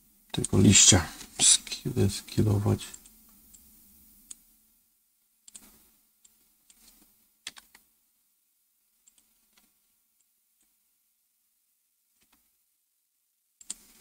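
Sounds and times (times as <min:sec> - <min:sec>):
keyboard and mouse clicking: 0:05.5 - 0:07.8, 0:09.0 - 0:09.7, 0:13.6 - 0:13.8.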